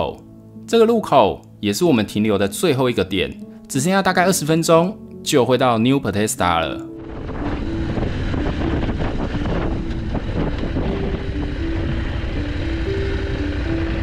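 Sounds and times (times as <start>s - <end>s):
motorcycle engine running: 7.0s - 14.0s
wind on microphone: 7.0s - 14.0s.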